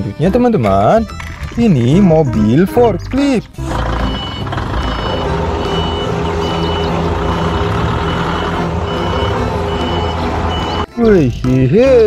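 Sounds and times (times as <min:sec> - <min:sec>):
forklift engine running: 0:03.6 - 0:11.0
reversing alarm beeps: 0:04.0 - 0:10.9.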